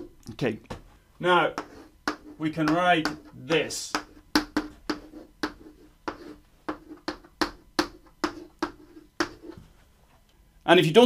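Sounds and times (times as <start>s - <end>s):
chalk tapping on blackboard: 1.5s - 9.7s.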